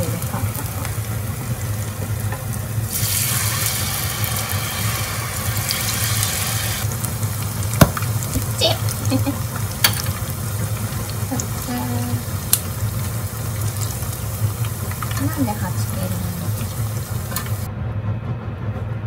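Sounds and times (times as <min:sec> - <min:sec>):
food sizzling in hot oil: 0:00.0 - 0:17.7
steady low hum: 0:00.0 - 0:19.0
utensils clicking against pan: 0:09.3 - 0:11.8, 0:13.6 - 0:17.7.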